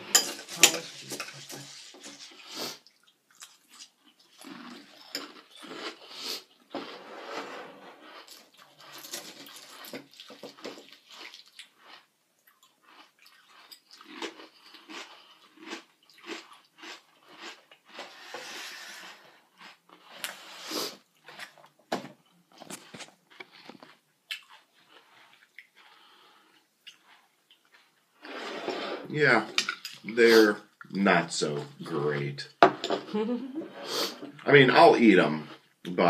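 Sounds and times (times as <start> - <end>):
chewing crunchy cereal: 0.8 - 7.0, 7.9 - 28.3.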